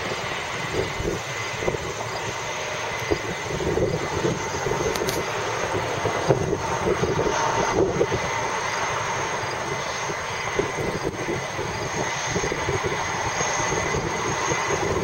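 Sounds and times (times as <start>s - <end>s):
jet engines roaring: 0.0s - 15.0s.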